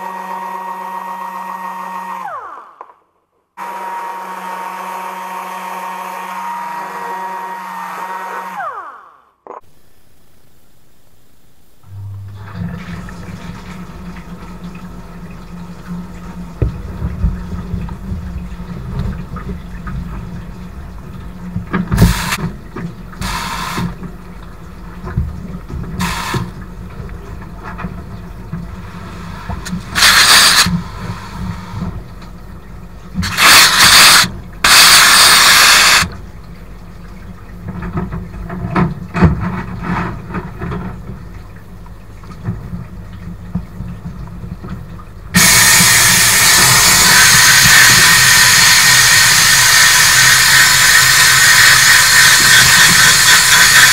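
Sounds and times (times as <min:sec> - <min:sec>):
pump humming: 0:00.0 - 0:02.8, 0:03.6 - 0:53.9
water churning: 0:12.2 - 0:53.9
blast gun hissing: 0:29.9 - 0:30.8.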